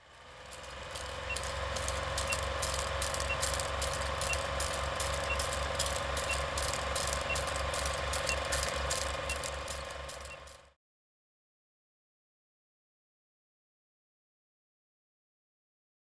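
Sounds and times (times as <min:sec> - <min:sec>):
film projector clattering: 0:00.3 - 0:10.7
short faint beeps: 0:01.0 - 0:10.6.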